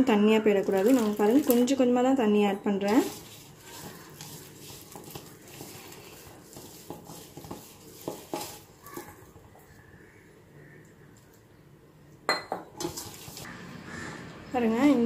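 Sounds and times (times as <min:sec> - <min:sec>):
batter squishing: 0:00.5 - 0:11.5, 0:12.8 - 0:13.6.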